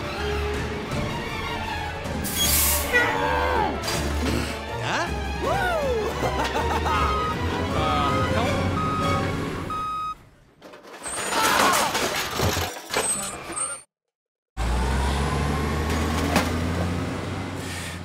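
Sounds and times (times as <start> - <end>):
truck engine rumble: 6.3 - 10.6, 14.6 - 18.0
reversing beep: 8.7 - 10.2.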